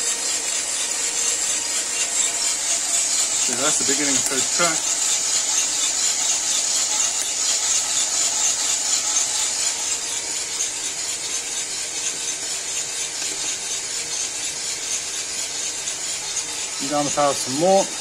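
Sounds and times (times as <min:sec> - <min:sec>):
coffee roaster rattling rush: 0:00.0 - 0:18.0
coffee beans popping: 0:02.4 - 0:10.0, 0:13.0 - 0:14.2.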